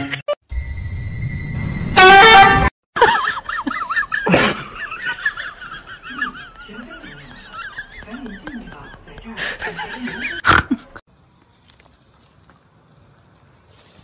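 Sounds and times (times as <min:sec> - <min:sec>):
loud horn-like honk: 0:01.8 - 0:02.7.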